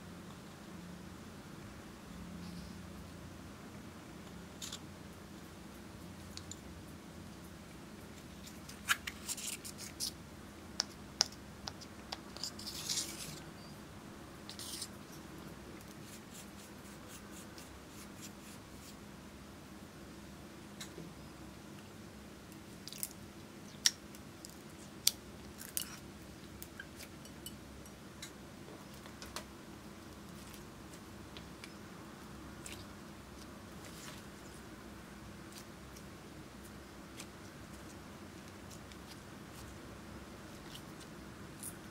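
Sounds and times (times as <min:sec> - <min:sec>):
faint steady hum: 0:00.0 - 0:41.9.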